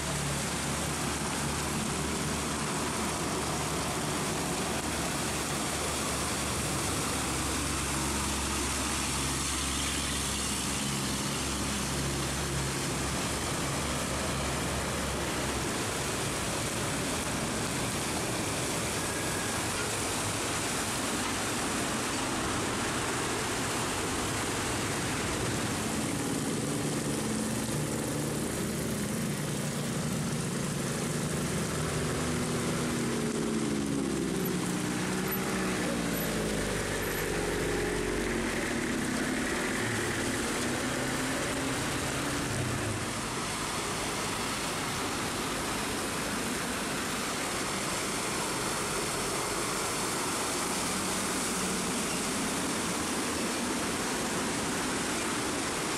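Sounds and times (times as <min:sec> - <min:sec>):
heavy rain hissing: 0:00.0 - 0:55.9
truck diesel engine passing: 0:21.7 - 0:54.8.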